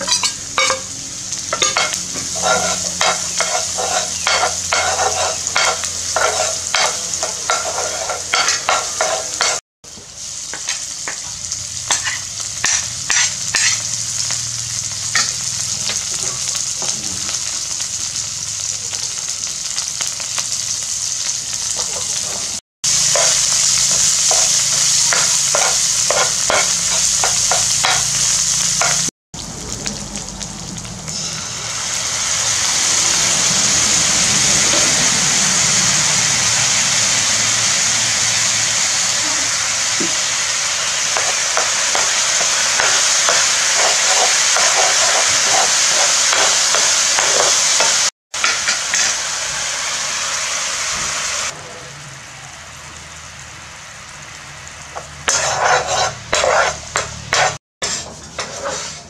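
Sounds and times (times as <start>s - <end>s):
ingredients sizzling in hot oil: 0.0s - 59.0s
metal ladle scraping a pan: 1.5s - 9.6s, 11.9s - 13.9s, 24.3s - 28.0s, 55.2s - 59.0s.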